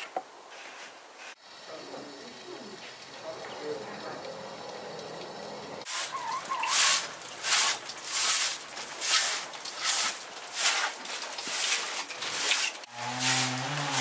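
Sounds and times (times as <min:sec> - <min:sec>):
hand broom sweeping wood: 0:00.5 - 0:01.4, 0:05.9 - 0:14.0.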